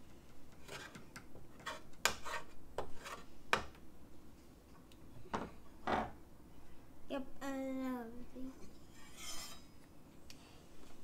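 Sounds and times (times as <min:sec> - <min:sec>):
spatula scraping griddle: 0:00.5 - 0:03.3, 0:08.9 - 0:09.7.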